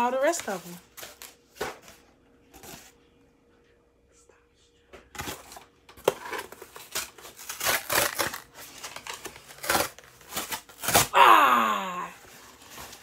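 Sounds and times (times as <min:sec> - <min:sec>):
cardboard box ripping: 0:05.2 - 0:11.2.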